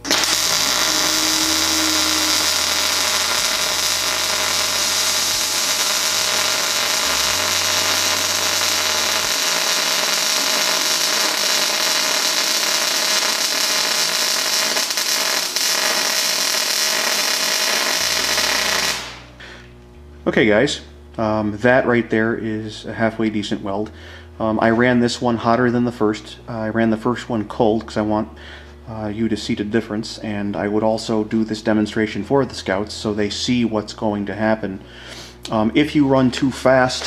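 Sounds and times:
welding arc crackling hiss: 0.0 - 19.8.

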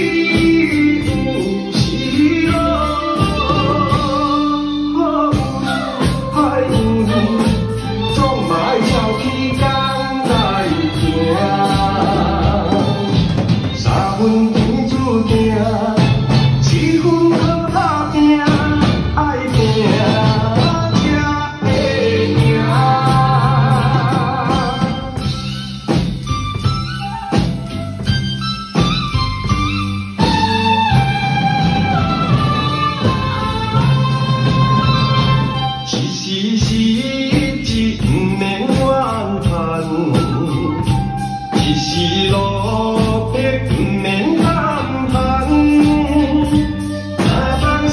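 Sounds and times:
person singing: 0.0 - 25.5, 32.6 - 47.9
drums and cymbals: 0.0 - 47.9.

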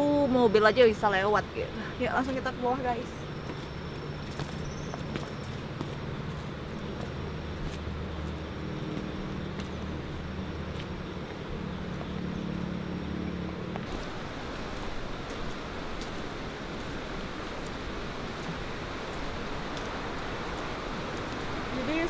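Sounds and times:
engine running: 2.8 - 22.0
rain hiss: 13.8 - 22.0.

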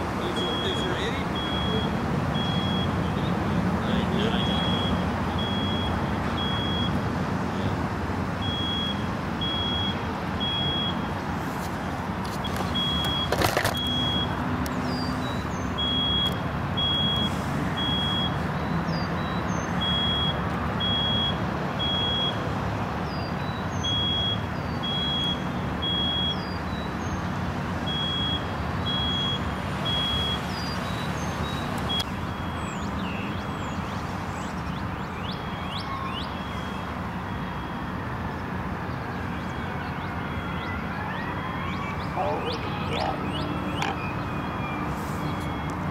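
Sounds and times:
vehicle engines rumbling: 0.0 - 45.9
alarm beeping: 0.4 - 3.6, 4.2 - 7.0, 8.4 - 11.2, 12.4 - 14.4, 15.2 - 22.4, 23.4 - 26.9, 27.9 - 32.6, 41.8 - 45.9.

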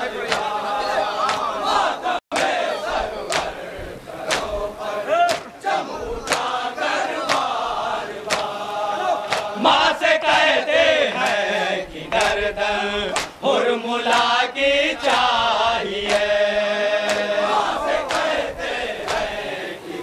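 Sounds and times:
men chanting: 0.0 - 20.0
hands slapping chests: 0.3 - 0.5, 1.2 - 1.5, 2.3 - 2.6, 3.3 - 3.6, 4.3 - 4.5, 5.2 - 5.6, 6.3 - 6.5, 7.2 - 7.5, 8.3 - 8.6, 9.2 - 9.6, 13.1 - 13.4, 14.1 - 14.4, 17.0 - 17.4, 18.0 - 18.3, 19.0 - 19.3.

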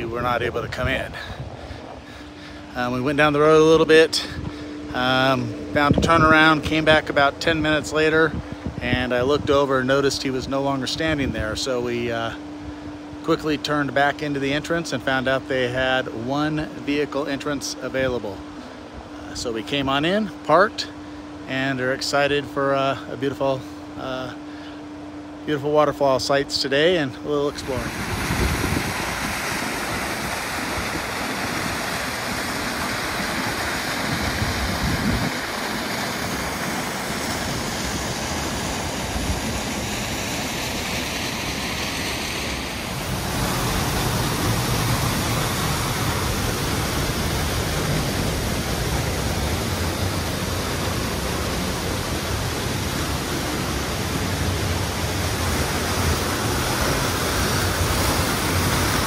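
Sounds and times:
waterfall pouring: 27.6 - 59.0.

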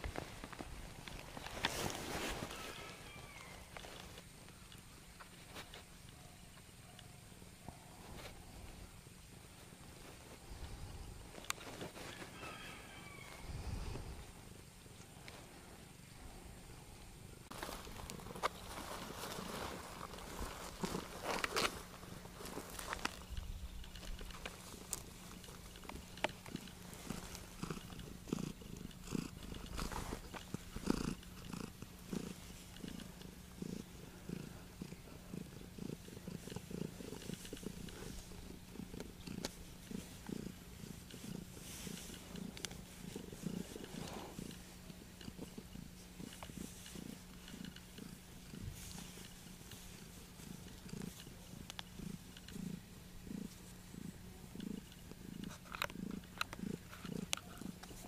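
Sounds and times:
cat purring: 13.4 - 58.0.

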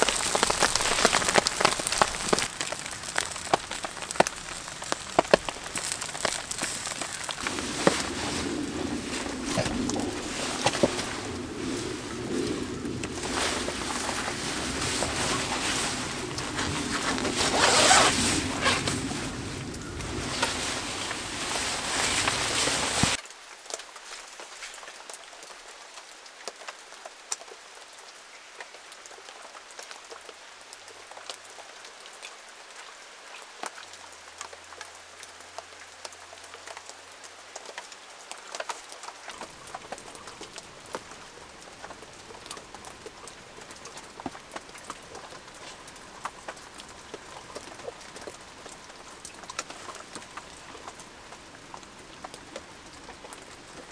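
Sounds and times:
plastic poncho rustling: 0.0 - 23.2
light rain pattering: 0.0 - 53.9.

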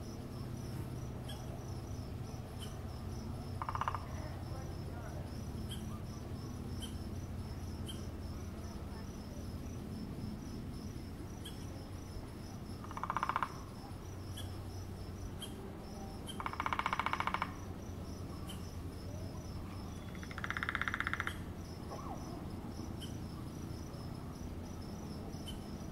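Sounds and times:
crickets chirping: 0.0 - 25.9
woodpecker drumming on wood: 3.4 - 4.4, 12.8 - 14.6, 16.2 - 18.7, 20.0 - 22.1.

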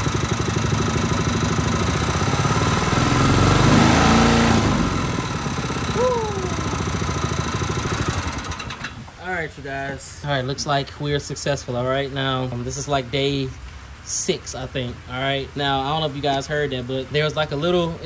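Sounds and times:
small engine running: 0.0 - 9.0.

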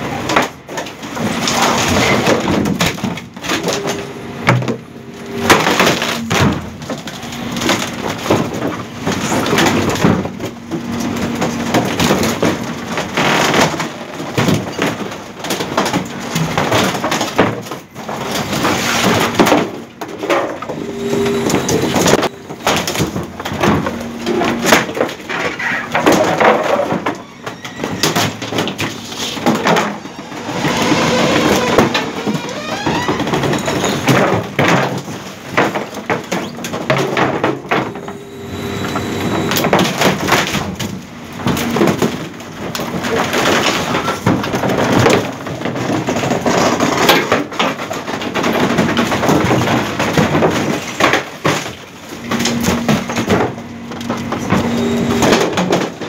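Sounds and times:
wood cracking and splintering: 0.0 - 20.8, 21.4 - 38.2, 39.4 - 56.0
low steady hum: 20.5 - 34.2, 37.4 - 42.0.

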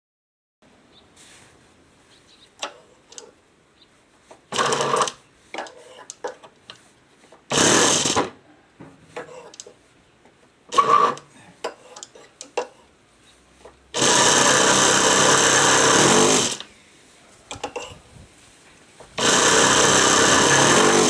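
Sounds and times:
electric starter spinning engine: 4.5 - 5.2, 7.5 - 8.3, 10.7 - 11.2, 13.9 - 16.7, 19.2 - 21.0.

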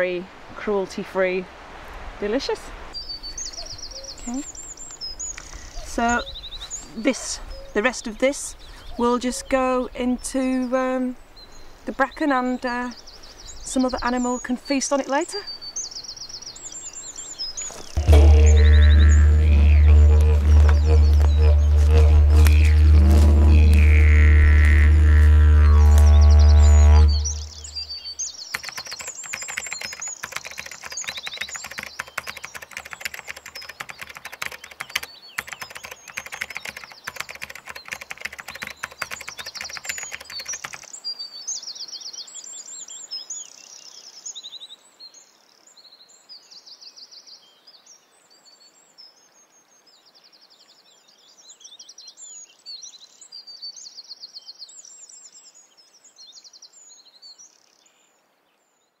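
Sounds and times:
songbirds chirping and trilling: 2.3 - 59.0
faint low drone: 18.0 - 27.8
rapid clicking: 28.5 - 40.9.

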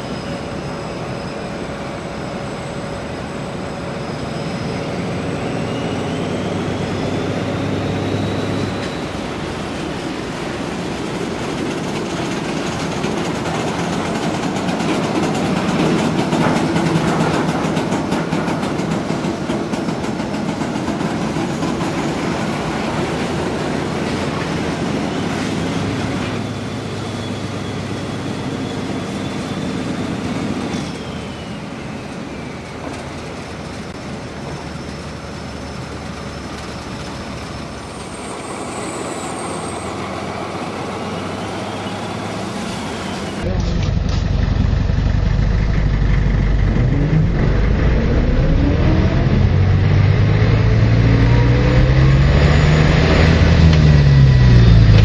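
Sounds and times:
faint high whine: 0.0 - 12.2
model trains rumbling on track: 0.0 - 49.7.

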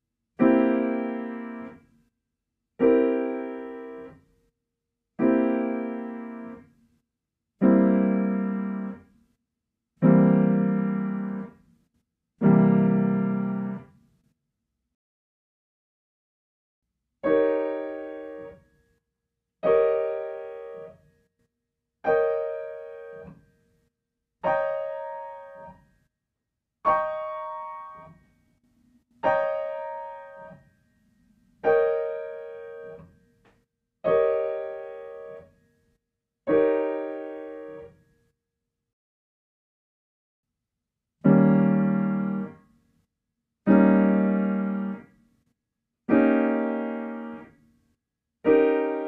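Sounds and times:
piano chords: 5.2 - 6.6, 7.6 - 9.0, 10.0 - 11.5, 12.4 - 13.8, 29.2 - 30.6, 36.5 - 37.8, 41.2 - 42.5, 43.7 - 45.0, 46.1 - 47.5, 48.5 - 49.0.

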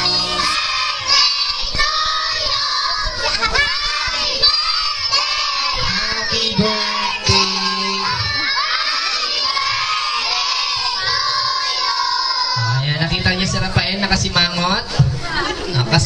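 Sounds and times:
children shouting together: 0.0 - 12.8
children's song: 0.0 - 12.8.

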